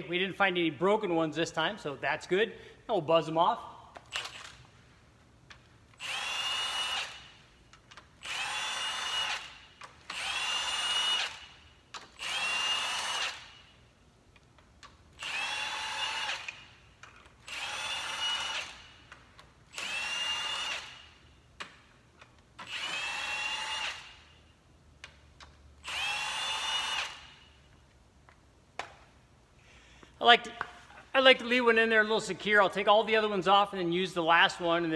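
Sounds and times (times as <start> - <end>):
impact wrench whining: 3.9 - 4.8, 5.5 - 27.8.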